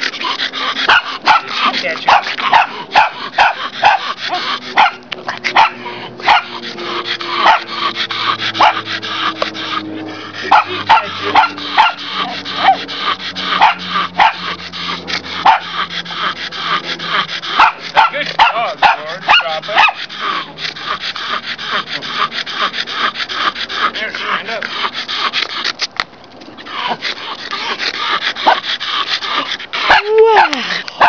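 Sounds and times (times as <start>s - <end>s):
dog barking: 0.8s - 5.0s, 5.6s - 6.6s, 7.4s - 7.8s, 8.6s - 8.9s, 10.5s - 12.8s, 13.5s - 14.5s, 15.4s - 15.7s, 17.5s - 20.0s, 28.4s - 28.6s, 29.9s - 30.6s.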